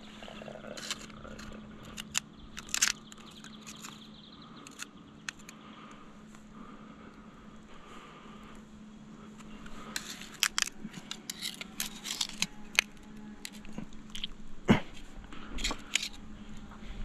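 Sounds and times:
knife scraping oyster shells: 0.6 - 4.0, 9.8 - 14.3, 15.6 - 16.2.

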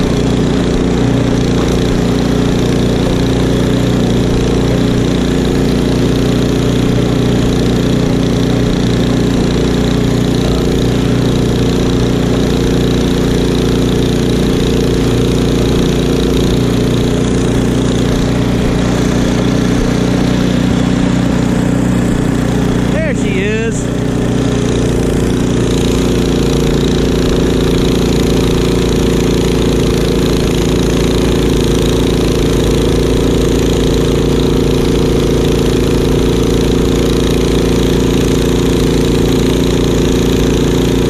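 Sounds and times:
snowblower engine running: 0.0 - 41.0.

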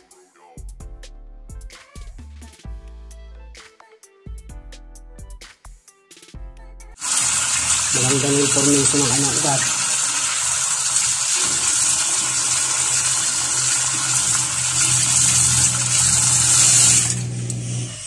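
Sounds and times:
tap water gushing into sink: 7.0 - 18.0.

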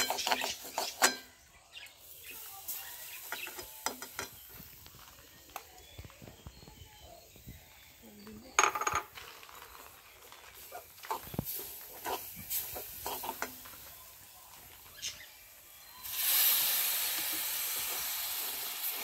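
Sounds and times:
metal spoon scraping a pan: 0.0 - 1.4, 11.1 - 13.7.

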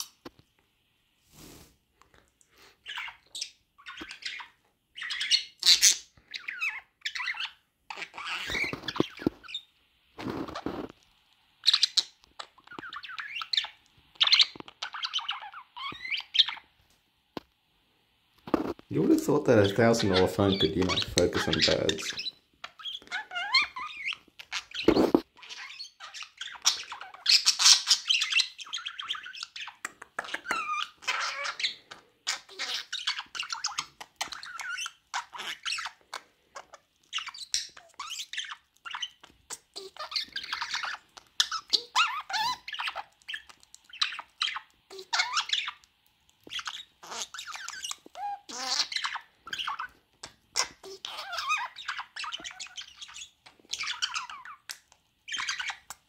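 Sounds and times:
budgerigar chattering: 19.6 - 36.0, 46.5 - 55.9.

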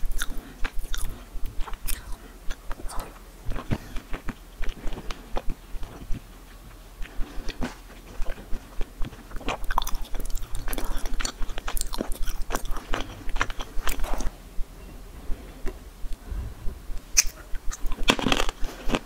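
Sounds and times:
crunching food: 0.0 - 14.3, 17.2 - 19.0
chewing with wet mouth clicks: 8.2 - 14.3.

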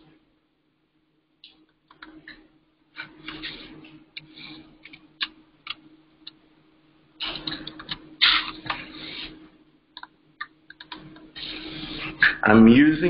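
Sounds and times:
faint steady hum: 0.0 - 13.0
keyboard typing: 1.6 - 2.4, 7.2 - 9.4, 10.0 - 11.8.

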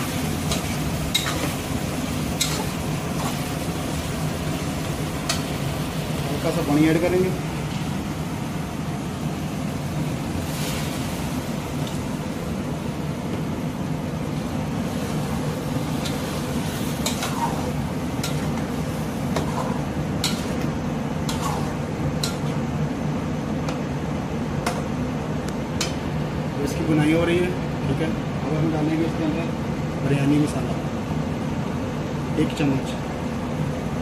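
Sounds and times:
pot hissing on stove: 0.0 - 13.1, 14.4 - 22.0
metal spatula clicking on pot: 22.2 - 22.5.

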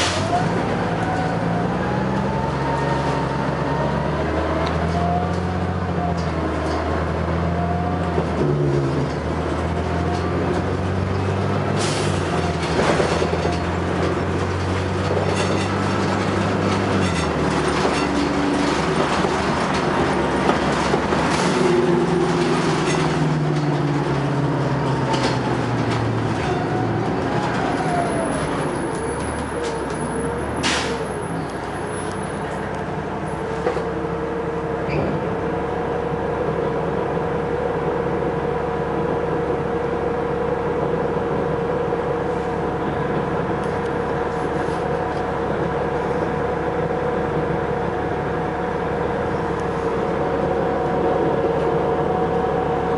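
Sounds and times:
bus engine running: 0.0 - 52.9
bus body knocks and rattles: 12.2 - 27.6.

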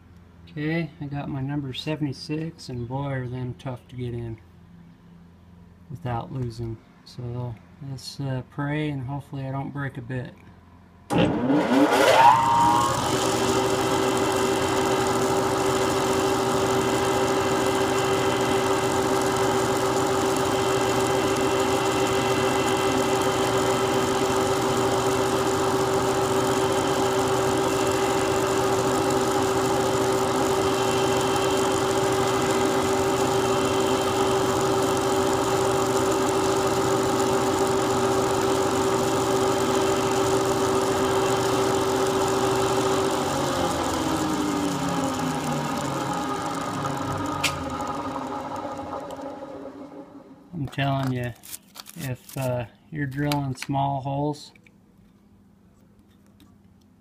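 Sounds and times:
mill spindle running: 11.1 - 50.8.

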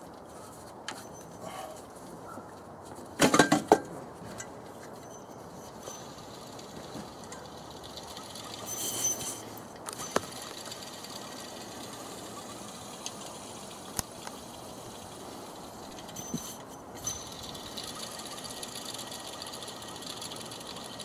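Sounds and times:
alternator pulley whirring: 5.0 - 21.0.

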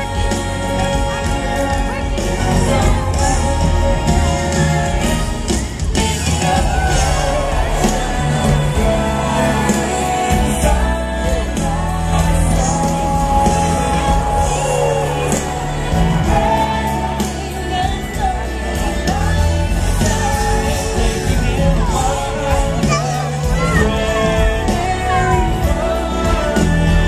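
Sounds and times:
pop music with singing: 0.0 - 27.0.

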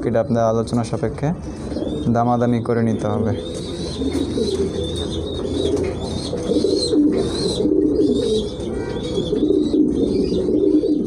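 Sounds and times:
pigeons cooing: 0.0 - 11.0.

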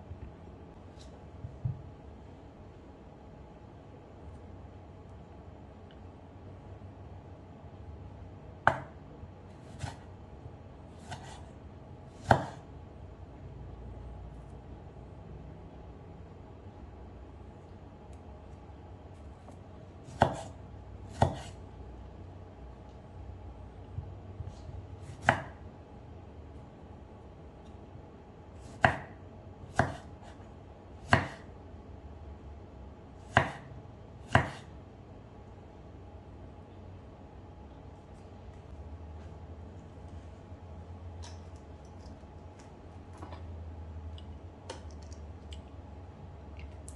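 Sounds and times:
knife cutting through tomato: 9.5 - 10.1, 11.0 - 11.5, 12.1 - 12.6, 20.1 - 21.6, 29.7 - 30.4.

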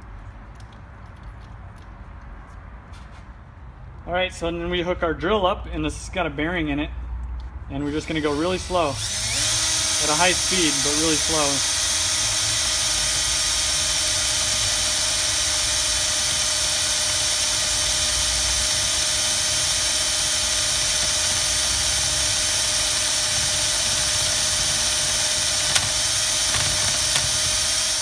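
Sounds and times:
cordless drill running: 7.8 - 28.0.

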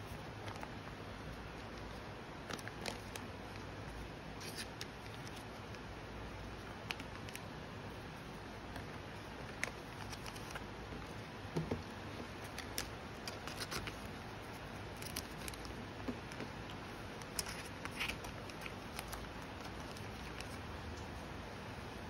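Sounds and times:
plastic sleeves crinkling: 0.0 - 21.2
steady background hiss: 0.0 - 22.0
cards clicking and sliding: 8.7 - 11.1, 12.4 - 14.2.

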